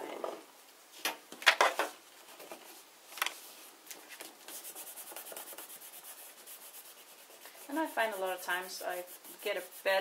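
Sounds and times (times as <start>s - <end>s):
fingers rubbing paper: 4.5s - 10.0s.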